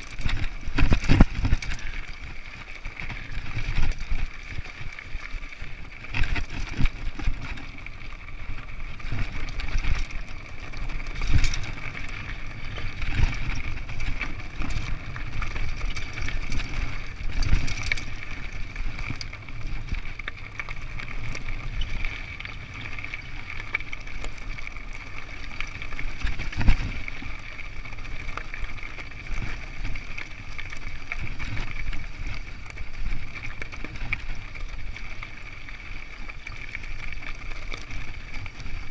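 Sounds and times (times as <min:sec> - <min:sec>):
bike knocking over rocks: 0:00.0 - 0:01.9, 0:22.6 - 0:27.4
bike rattling: 0:00.0 - 0:38.9.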